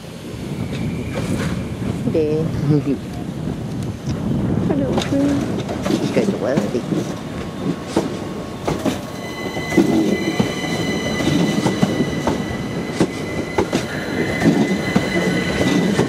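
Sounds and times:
train rumbling slowly: 0.0s - 16.0s
high-pitched wheel squeal: 9.1s - 16.0s.

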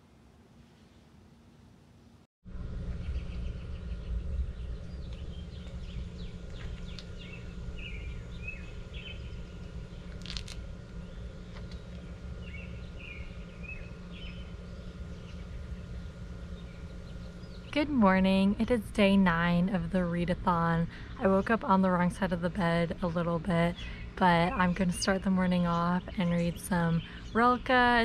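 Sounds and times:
low background rumble: 2.5s - 28.0s
small birds chirping: 3.0s - 17.9s, 23.1s - 28.0s.

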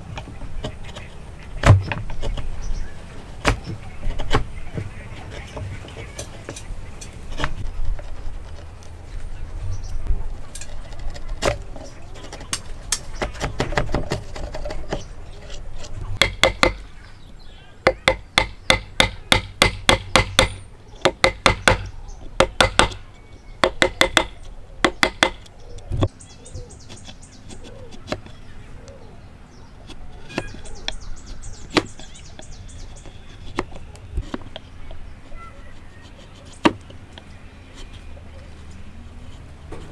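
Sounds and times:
chisel paring wood: 3.4s - 4.5s, 10.9s - 16.9s, 17.8s - 23.0s, 23.6s - 26.1s, 29.9s - 35.0s, 35.8s - 38.0s
hammer striking chisel: 16.2s - 16.8s, 17.9s - 23.0s, 23.6s - 25.4s.

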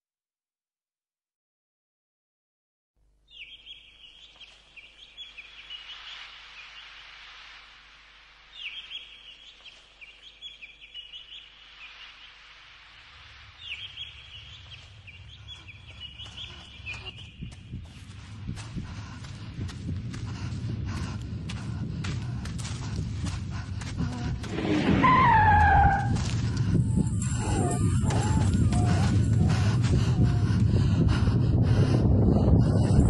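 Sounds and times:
soft rushing hiss: 3.9s - 15.8s
birds calling in high bursts: 8.5s - 12.6s, 13.5s - 17.6s
low rumble: 12.4s - 33.0s.

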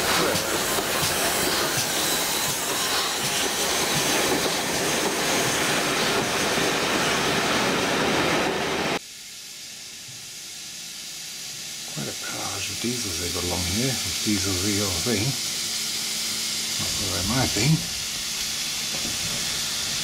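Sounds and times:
railway coaches rushing past: 0.0s - 9.0s
train running sound: 0.0s - 9.0s, 9.6s - 20.0s.

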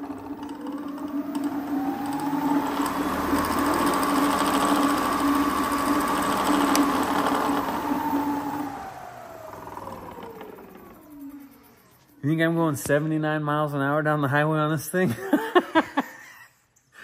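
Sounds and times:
electric motor whine: 0.0s - 12.2s
low hum: 0.0s - 12.2s.

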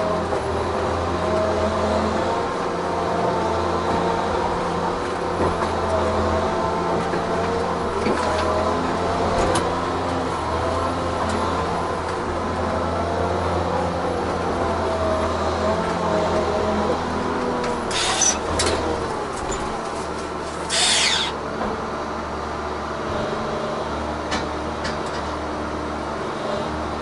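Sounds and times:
diesel engine running with whine: 0.0s - 27.0s.

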